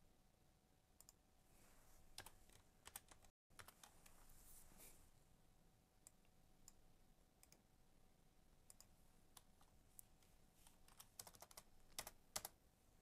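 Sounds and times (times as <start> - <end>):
computer keyboard and mouse clicks: 2.2 - 4.2, 10.6 - 12.6.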